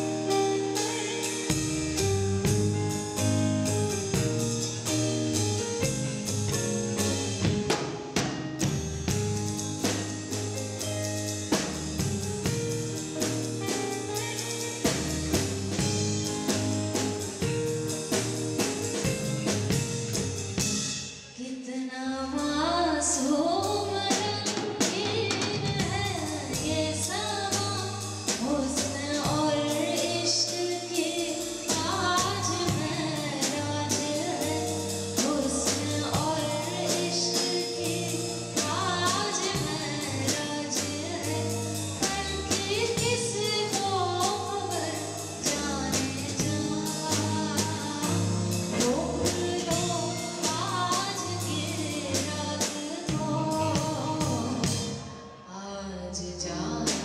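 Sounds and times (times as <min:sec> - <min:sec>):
music with drum kit: 0:00.0 - 0:21.4, 0:23.1 - 0:55.4
person singing: 0:21.4 - 0:57.0.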